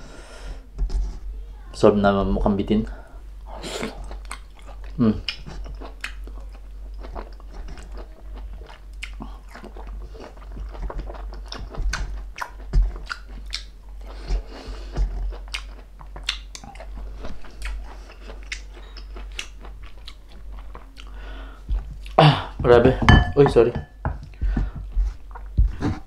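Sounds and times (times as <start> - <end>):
person chewing orange: 3.5 - 22.3
low thumps: 22.6 - 24.6.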